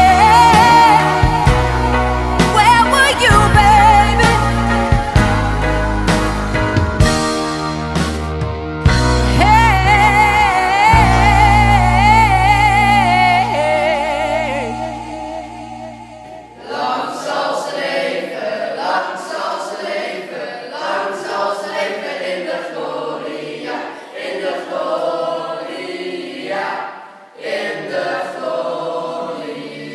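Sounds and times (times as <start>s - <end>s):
group singing a cappella: 0.0s - 5.9s, 9.5s - 29.9s
solo vibrato singing voice: 9.4s - 17.2s.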